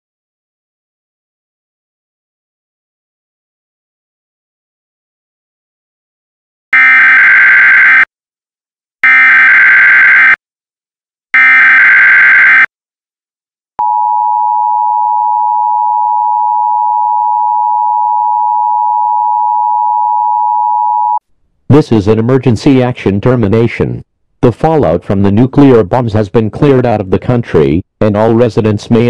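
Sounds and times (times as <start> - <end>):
screeching data tones: 11.4 - 12.7.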